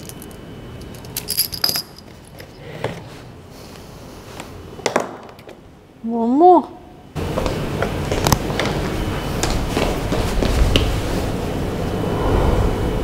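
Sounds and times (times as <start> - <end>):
small metal objects clinking: 0.0 - 2.6.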